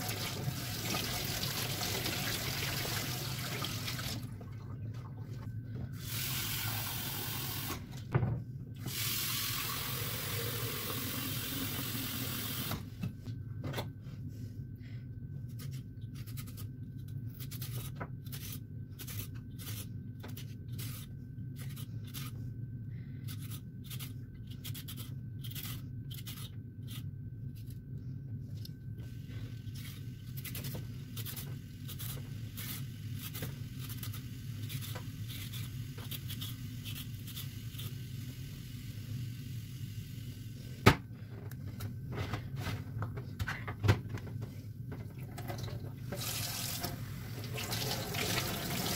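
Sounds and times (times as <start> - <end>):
peeler scraping carrot: 15.5 - 22.4, 23.2 - 27.8, 29.7 - 38.0.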